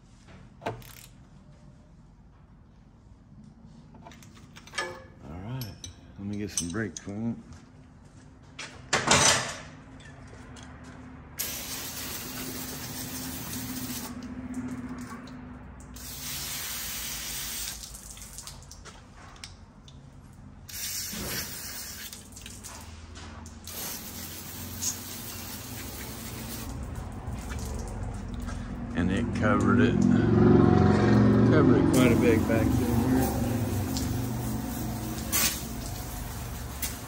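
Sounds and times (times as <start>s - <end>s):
aerosol spray hissing: 11.4s - 14.1s, 23.7s - 26.7s.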